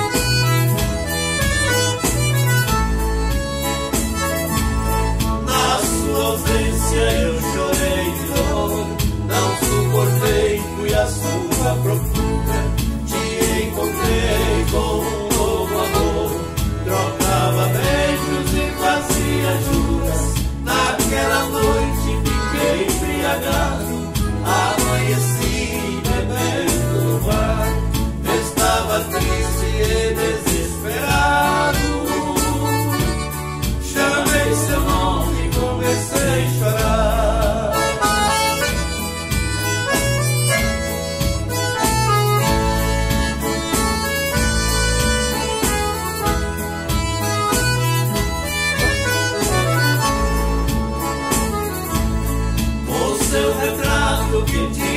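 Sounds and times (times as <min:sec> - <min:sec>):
accordion melody: 0:00.0 - 0:54.9
keyboard bass and rhythm: 0:00.0 - 0:54.9
strummed acoustic guitar: 0:00.0 - 0:54.9.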